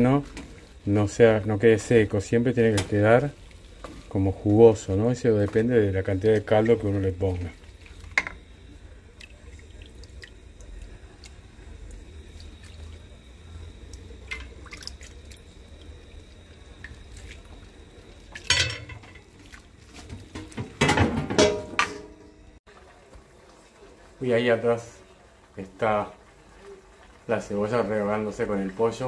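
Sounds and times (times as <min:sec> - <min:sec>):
broth bubbling in a pan: 0:00.0 - 0:20.9, 0:22.6 - 0:29.0
wet dripping: 0:09.0 - 0:20.3.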